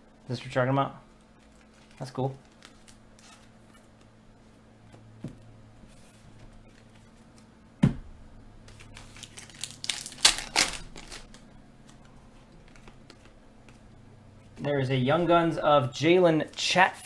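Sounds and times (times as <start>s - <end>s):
foil card pack tearing and crinkling: 8.7s - 11.4s.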